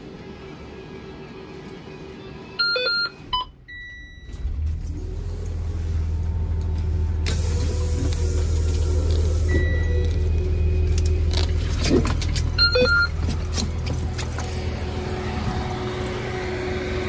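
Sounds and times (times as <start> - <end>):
dashboard warning beeps: 2.4 - 4.5, 9.2 - 14.1
diesel engine starting and idling: 2.8 - 17.0.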